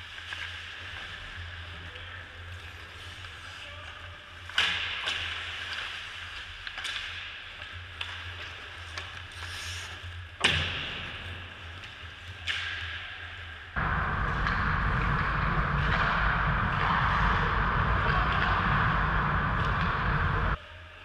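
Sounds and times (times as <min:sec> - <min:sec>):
puck and sticks clacking: 0:06.6 - 0:09.4, 0:11.8 - 0:13.0, 0:13.8 - 0:20.6
loud rushing noise: 0:13.8 - 0:20.6
steady low hum: 0:13.8 - 0:20.6.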